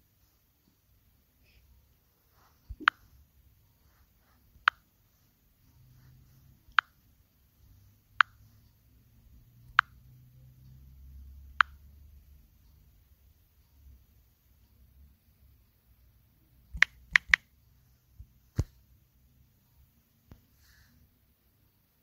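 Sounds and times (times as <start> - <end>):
sharp short clicks: 16.7 - 17.5.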